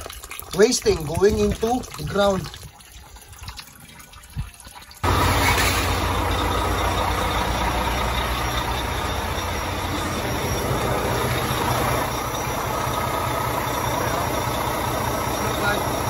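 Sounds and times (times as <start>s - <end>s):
diesel truck engine idling: 5.0s - 16.0s.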